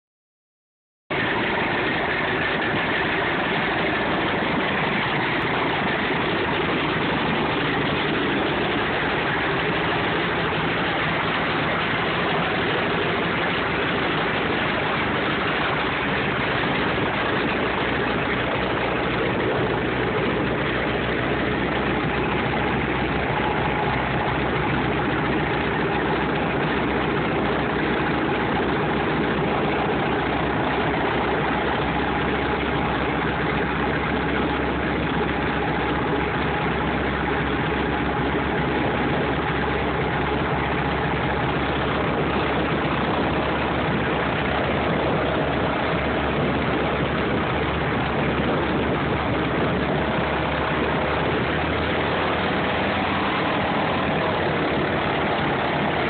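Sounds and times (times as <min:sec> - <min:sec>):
propeller plane engine idling: 0:01.1 - 0:56.0.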